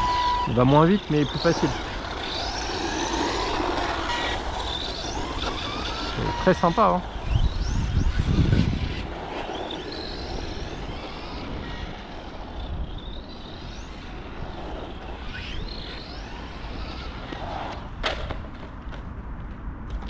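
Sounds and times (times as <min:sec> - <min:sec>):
electric motor whining: 0:00.0 - 0:17.9
tyre and wind noise: 0:00.0 - 0:20.0.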